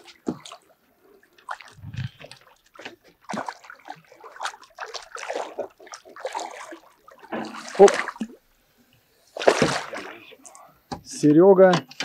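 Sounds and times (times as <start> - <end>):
water splashing and sloshing: 0.0 - 11.0.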